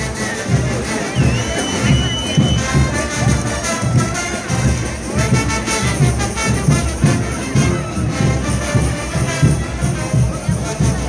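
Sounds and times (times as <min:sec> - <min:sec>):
steady drum beat: 0:00.0 - 0:11.0
trumpets and trombones melody: 0:00.0 - 0:11.0.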